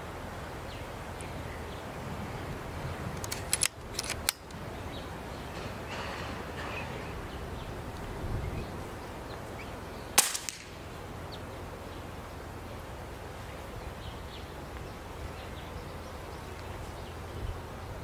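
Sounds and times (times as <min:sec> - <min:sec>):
air rifle shot crack: 0:10.2 - 0:10.8.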